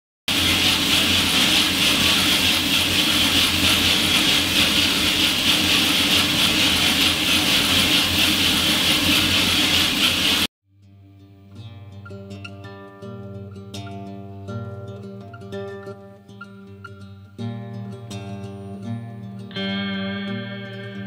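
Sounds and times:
motor hum: 0:00.3 - 0:10.5.

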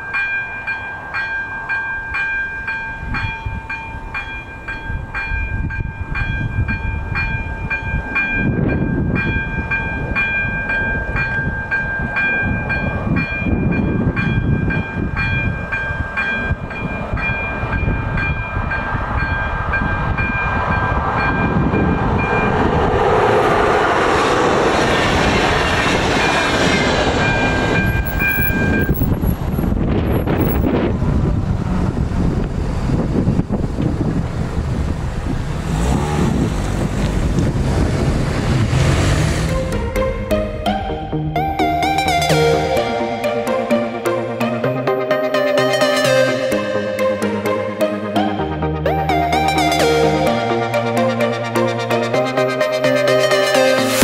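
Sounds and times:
level crossing bell ringing: 0:00.0 - 0:20.4
train wheels rumbling on track: 0:00.0 - 0:41.1.

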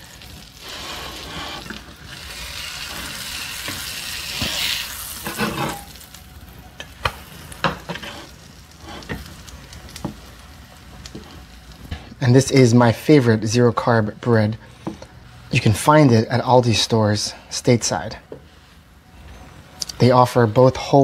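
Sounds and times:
butter sizzling in a skillet: 0:00.0 - 0:12.0.

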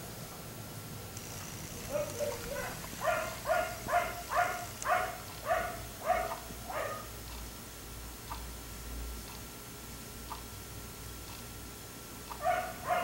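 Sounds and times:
dog barking: 0:01.9 - 0:07.2, 0:12.3 - 0:13.0.

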